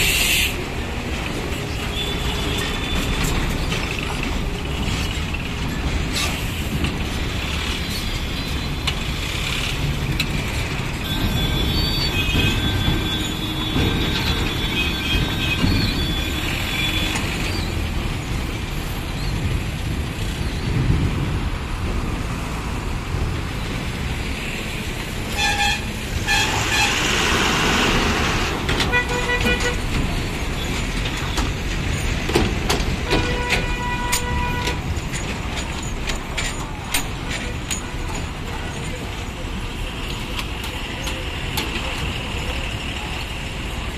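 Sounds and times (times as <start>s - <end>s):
vehicle horns honking: 25.3s - 27.1s, 28.8s - 29.9s, 33.0s - 34.8s.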